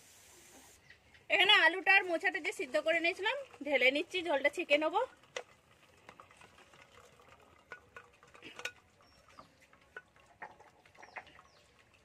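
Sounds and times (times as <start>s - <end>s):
pot clinking against colander: 7.5s - 11.6s.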